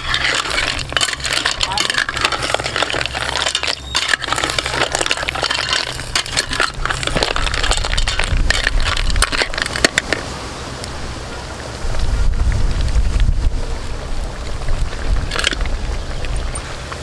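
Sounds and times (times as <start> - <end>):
snail shells clacking in a pot: 0.0 - 10.2.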